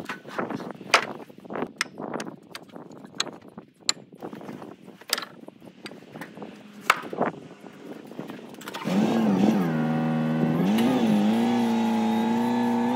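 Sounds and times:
forklift engine running: 8.7s - 12.9s.

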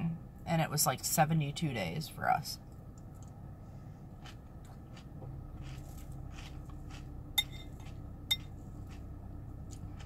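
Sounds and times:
low hum: 0.0s - 10.0s
cereal being chewed: 4.0s - 10.0s
spoon clinking against bowl: 7.4s - 8.5s.

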